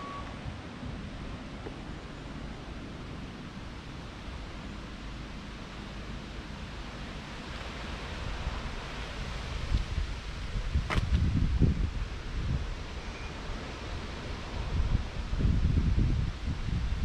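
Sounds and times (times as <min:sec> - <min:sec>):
wind on microphone: 0:05.4 - 0:17.0.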